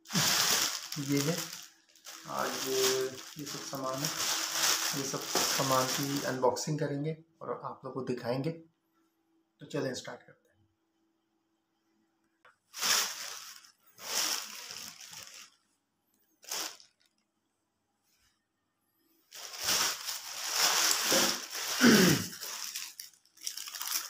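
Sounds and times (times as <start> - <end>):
plastic bag rustling: 0.0 - 6.4, 12.7 - 15.6, 16.4 - 17.2, 19.3 - 24.0.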